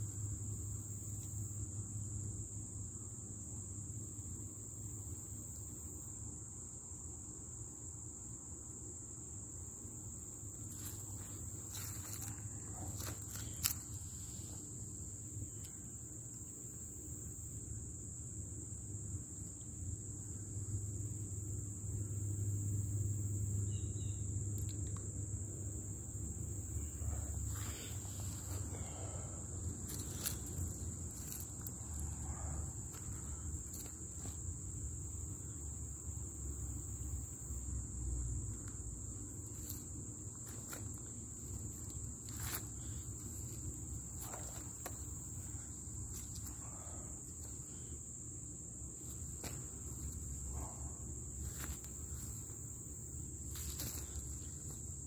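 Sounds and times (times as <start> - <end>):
high-pitched insect drone: 19.8 - 55.0.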